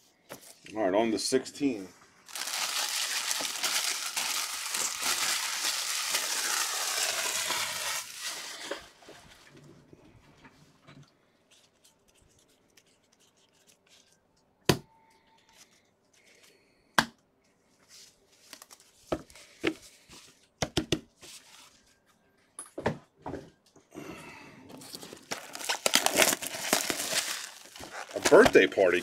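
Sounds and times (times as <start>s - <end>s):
cards rustling and tearing: 2.3s - 9.0s, 11.5s - 14.3s, 18.4s - 19.6s, 24.8s - 29.0s.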